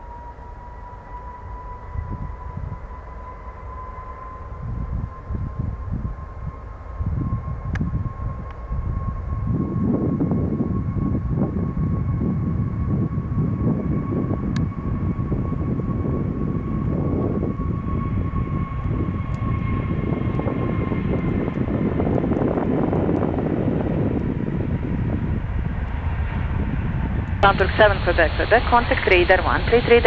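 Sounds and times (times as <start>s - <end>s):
high turbine whine: 0.0s - 30.0s
jet engines rumbling: 0.0s - 30.0s.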